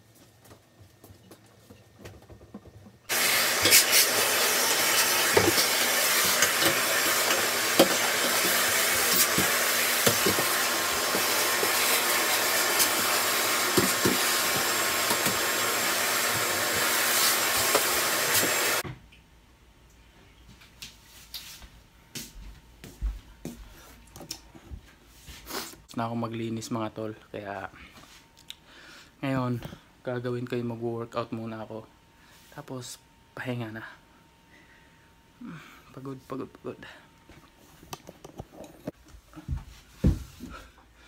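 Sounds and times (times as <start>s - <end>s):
vacuum cleaner running: 3.1s - 18.8s.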